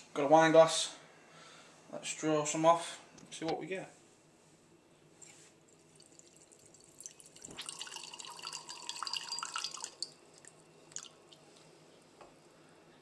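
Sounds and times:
wine trickling into a glass: 0:05.7 - 0:11.4.

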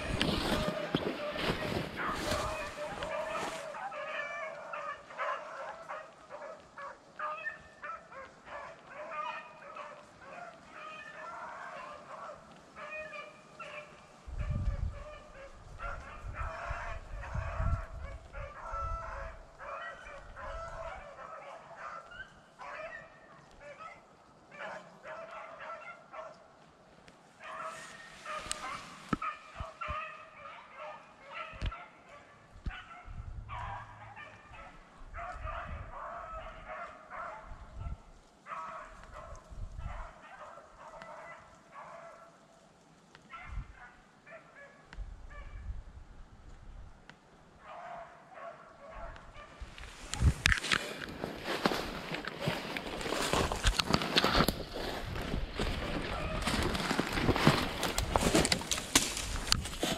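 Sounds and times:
dogs baying and yelping: 0:00.0 - 0:26.4, 0:27.4 - 0:42.3, 0:51.2 - 0:59.9.

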